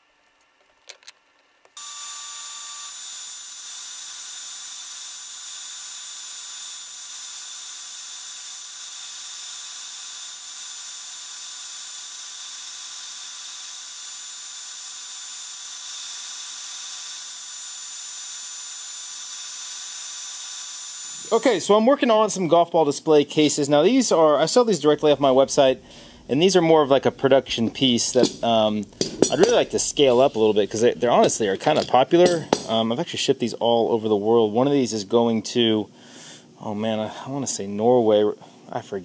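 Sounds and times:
router spindle whine: 1.8 - 21.8.

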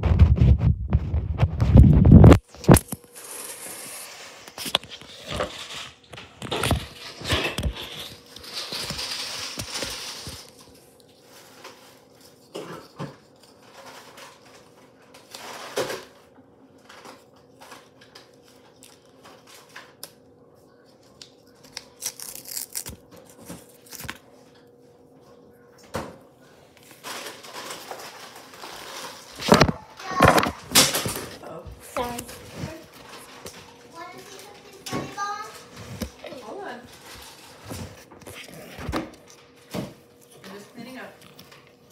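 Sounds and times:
paper or plastic rustling: 0.0 - 16.2, 26.8 - 31.4, 32.0 - 39.6.

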